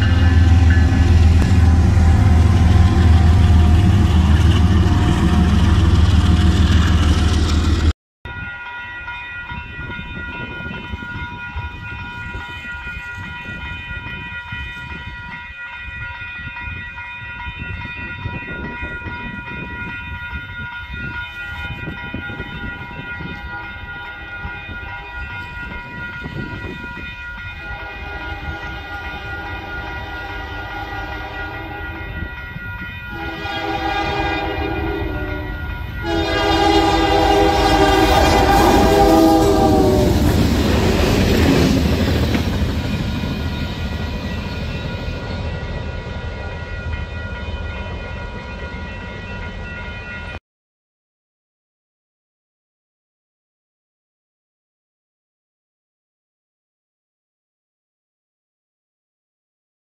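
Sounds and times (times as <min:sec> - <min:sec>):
crossing warning bell ringing: 0:00.0 - 0:06.3, 0:08.3 - 0:50.4
distant train horn: 0:00.0 - 0:06.7, 0:27.6 - 0:32.4, 0:33.0 - 0:41.8
low train rumble: 0:00.0 - 0:50.4.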